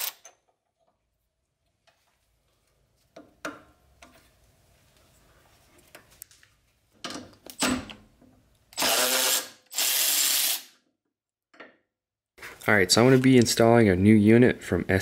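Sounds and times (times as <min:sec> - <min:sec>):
ratchet wrench ratcheting: 0:08.8 - 0:10.7.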